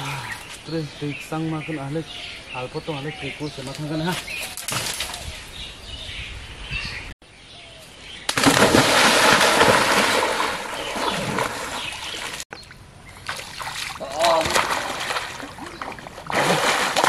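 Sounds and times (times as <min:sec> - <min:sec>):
person wading through muddy water: 0:08.5 - 0:12.4, 0:13.1 - 0:17.0.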